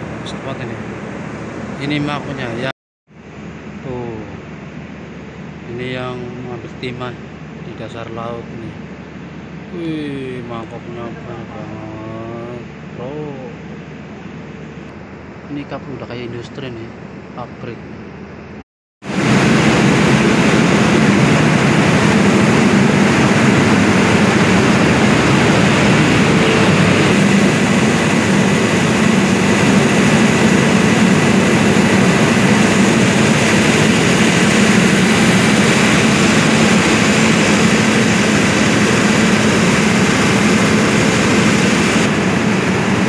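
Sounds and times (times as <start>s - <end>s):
thin steady whine: 0.0s - 43.0s
heavy machinery droning: 19.0s - 43.0s.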